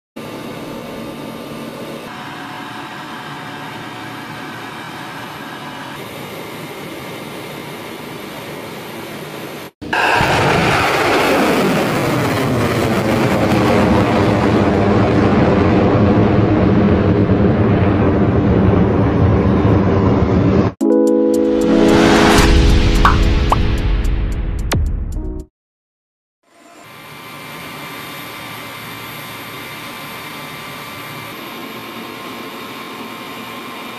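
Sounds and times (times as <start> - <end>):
rocket motor blast and rush: 9.8 - 18.8.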